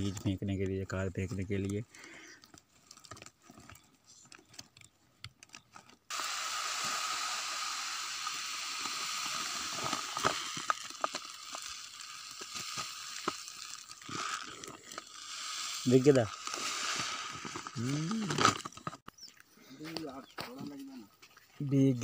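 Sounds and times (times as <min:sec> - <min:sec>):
bags crinkling: 0:01.9 - 0:06.0, 0:08.7 - 0:19.0
seeds pouring into a sack: 0:06.1 - 0:19.0.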